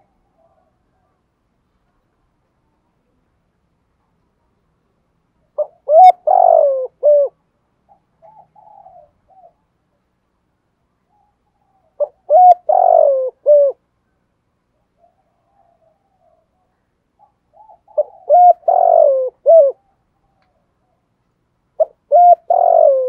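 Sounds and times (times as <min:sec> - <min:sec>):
dove cooing: 0:05.5 - 0:09.7, 0:11.1 - 0:13.8, 0:14.8 - 0:21.1, 0:21.8 - 0:23.0.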